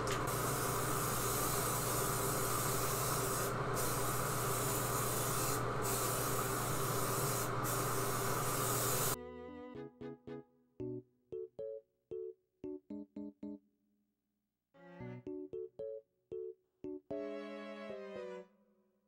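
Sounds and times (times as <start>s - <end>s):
aerosol can spraying hiss: 0.0s - 9.2s
vent fan humming: 0.0s - 9.2s
piano music: 9.2s - 13.6s, 15.0s - 18.6s.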